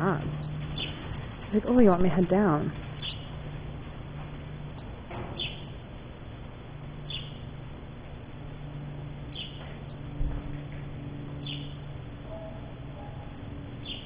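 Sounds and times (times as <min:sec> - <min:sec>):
steady low hum: 0:00.0 - 0:14.0
small bird chirping: 0:00.7 - 0:01.0, 0:03.0 - 0:03.4, 0:05.4 - 0:05.8, 0:07.0 - 0:07.5, 0:09.3 - 0:09.6, 0:11.4 - 0:14.0.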